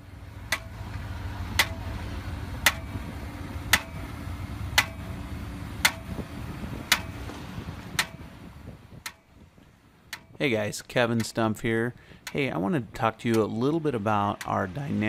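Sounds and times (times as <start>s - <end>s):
low engine hum: 0.0s - 15.0s
hammer striking steel rods: 0.5s - 0.7s, 1.5s - 1.9s, 2.6s - 3.0s, 3.7s - 4.1s, 4.8s - 5.2s, 5.8s - 6.3s, 6.9s - 8.3s.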